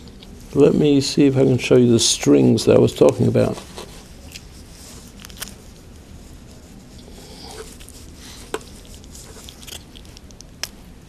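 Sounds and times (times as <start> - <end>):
raw chicken tearing: 3.6 - 10.9.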